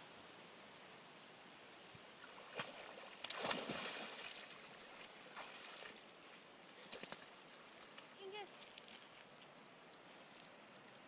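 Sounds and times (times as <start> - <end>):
dog splashing in water: 2.4 - 6.0.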